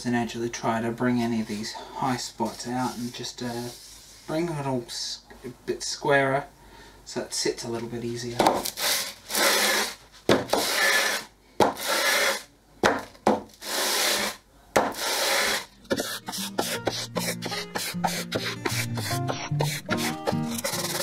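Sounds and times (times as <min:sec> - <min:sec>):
wooden plane sanding on sandpaper: 0:10.6 - 0:11.2, 0:11.8 - 0:12.4, 0:13.6 - 0:21.0
music: 0:15.7 - 0:21.0.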